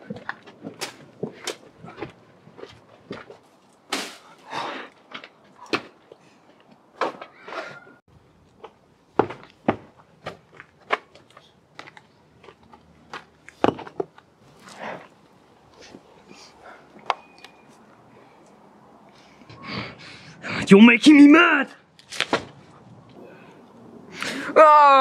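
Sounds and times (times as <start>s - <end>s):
footsteps on gritty paving: 0.0s - 3.9s.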